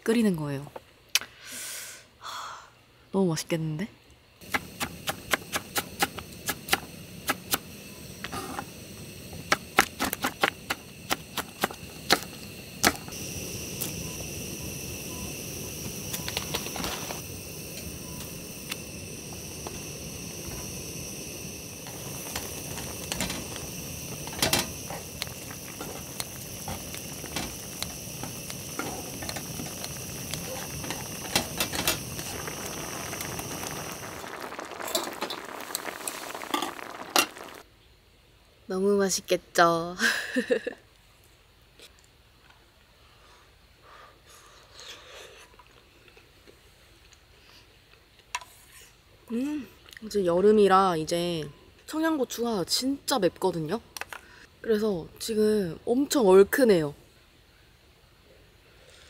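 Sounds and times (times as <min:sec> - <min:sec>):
steady hiss: 0:04.2 - 0:37.8
high even whine: 0:04.4 - 0:37.6.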